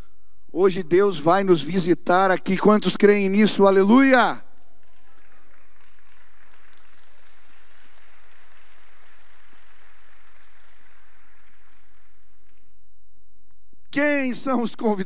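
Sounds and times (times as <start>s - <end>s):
crowd applauding: 4.8s - 12.7s.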